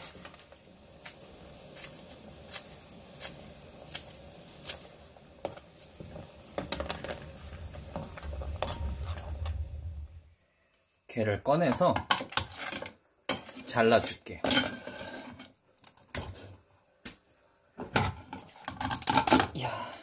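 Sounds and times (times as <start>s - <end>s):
low rumble: 7.3s - 10.6s.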